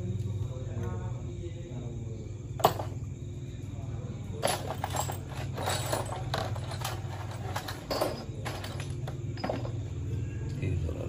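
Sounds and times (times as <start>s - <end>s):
steady low hum: 0.0s - 11.0s
metallic clinks and knocks: 2.6s - 3.1s, 4.4s - 10.1s.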